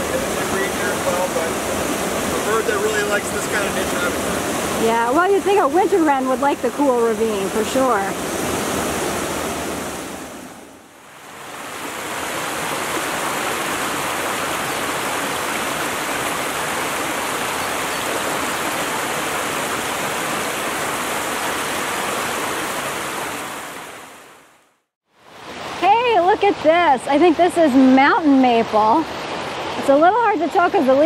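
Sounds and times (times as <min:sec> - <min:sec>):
brook rushing over cascades: 0:00.0 - 0:24.1.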